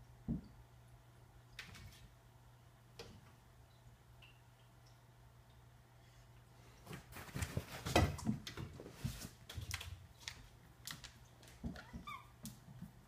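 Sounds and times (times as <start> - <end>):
dog claws clicking on hard floor: 9.5 - 12.8.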